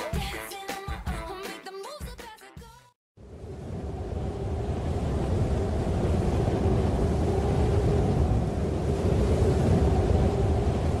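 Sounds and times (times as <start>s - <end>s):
low rush of wind: 3.2s - 11.0s.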